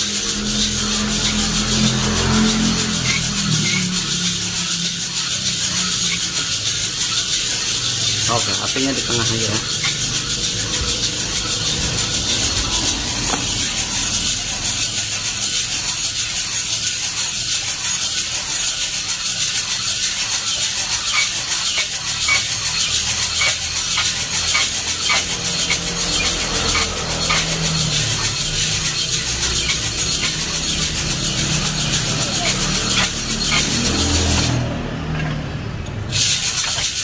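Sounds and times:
coffee beans tumbling in drum: 0.0s - 34.6s, 36.1s - 37.0s
gas burner hiss: 36.1s - 37.0s.

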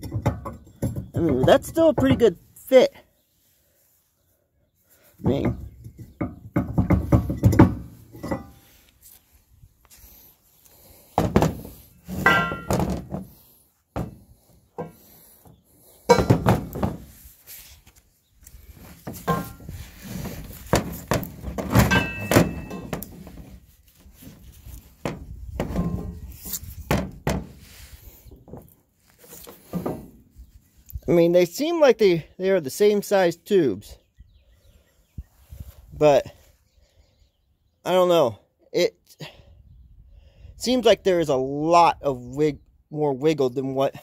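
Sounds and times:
metal clunks and knocks: 0.0s - 2.4s, 5.2s - 8.6s, 11.2s - 15.1s, 16.1s - 17.2s, 19.0s - 23.5s, 25.0s - 27.6s, 29.6s - 30.2s.

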